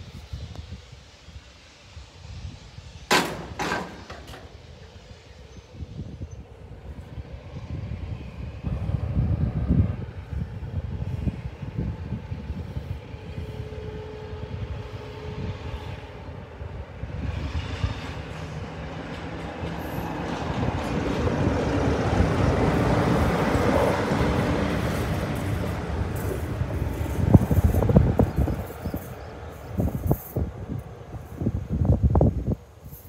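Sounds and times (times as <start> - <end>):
diesel locomotive engine running: 0.0 - 33.0
train wheels clattering over rail joints: 3.1 - 4.9, 17.2 - 30.9.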